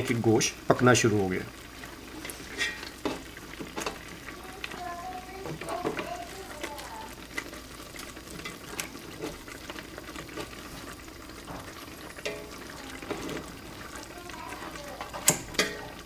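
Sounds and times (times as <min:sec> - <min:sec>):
soft wet stirring: 0:01.4 - 0:16.0
metal tongs knocking on pot: 0:02.2 - 0:04.0, 0:12.2 - 0:13.3, 0:15.0 - 0:15.9.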